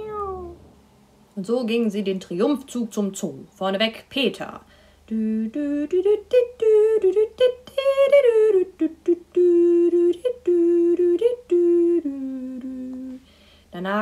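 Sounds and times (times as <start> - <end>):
person humming: 0.0 - 0.7, 5.1 - 13.3.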